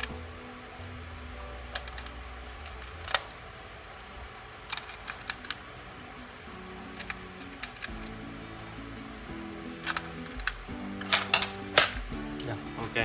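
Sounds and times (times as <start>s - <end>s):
faint background music: 0.0s - 13.0s
small parts and screwdriver clicking: 1.7s - 3.4s, 4.0s - 6.3s, 6.9s - 8.2s, 9.8s - 12.5s.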